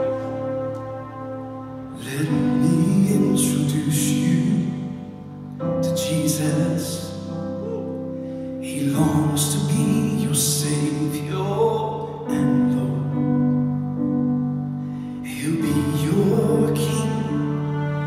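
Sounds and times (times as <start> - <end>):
piano accompaniment: 0.0 - 18.0
man singing gospel song: 2.0 - 4.8, 5.8 - 7.3, 8.6 - 13.2, 15.3 - 17.6.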